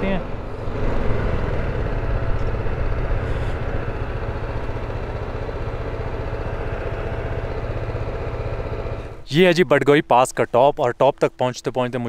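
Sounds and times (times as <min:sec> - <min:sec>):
motorcycle engine running: 0:00.0 - 0:09.5.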